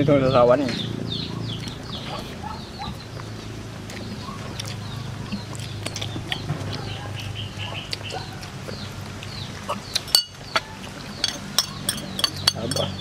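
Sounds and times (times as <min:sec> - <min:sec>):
birds chirping: 0:00.0 - 0:13.0
faint clicks of people eating: 0:02.9 - 0:12.9.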